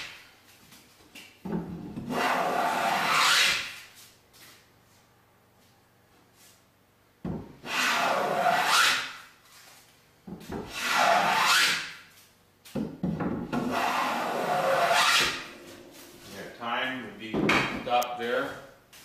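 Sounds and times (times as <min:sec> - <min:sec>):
hand plane shaving wood: 0:13.6 - 0:15.6.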